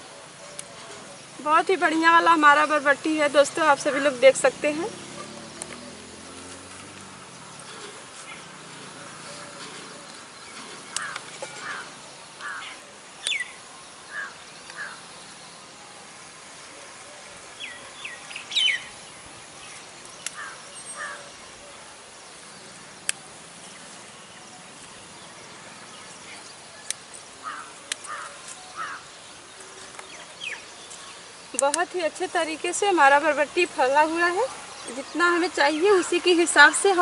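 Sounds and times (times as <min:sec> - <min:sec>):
birds chirping: 0:00.0 - 0:37.0
steady outdoor hiss: 0:00.0 - 0:37.0
sharp clicks: 0:05.5 - 0:05.9, 0:31.5 - 0:32.0.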